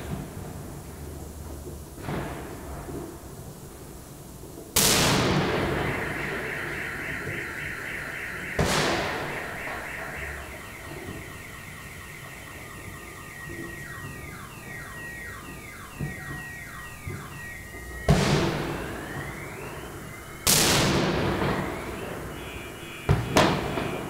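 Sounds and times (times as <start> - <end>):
car alarm whooping: 4.9 - 24.0.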